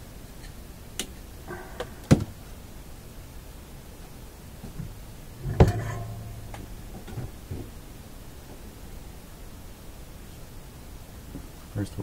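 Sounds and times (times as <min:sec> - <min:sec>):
sharp clicks and knocks: 0:04.7 - 0:07.8.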